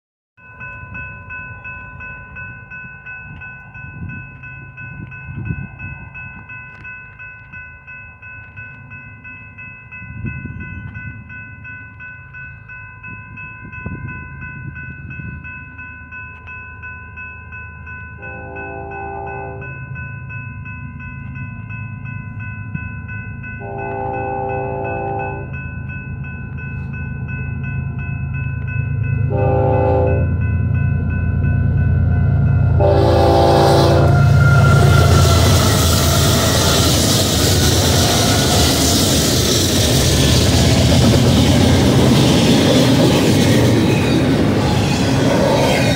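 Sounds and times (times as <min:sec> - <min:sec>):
crossing warning bells ringing: 0:00.4 - 0:45.9
distant locomotive horn: 0:18.2 - 0:19.8, 0:23.6 - 0:25.5, 0:29.3 - 0:30.4, 0:32.5 - 0:36.9.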